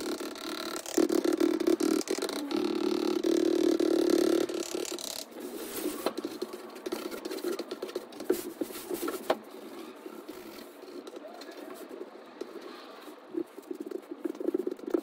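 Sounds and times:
drawing stick scraping paper: 0.0s - 11.0s.

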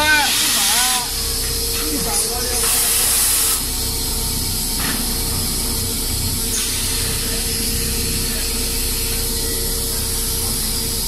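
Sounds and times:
loud hiss: 0.0s - 11.0s
machine mechanical drone: 0.0s - 11.0s.

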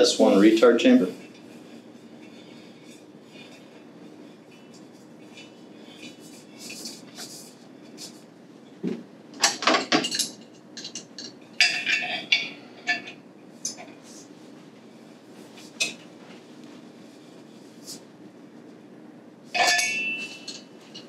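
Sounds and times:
metal clinks and clanks: 9.4s - 13.9s, 19.6s - 21.0s.

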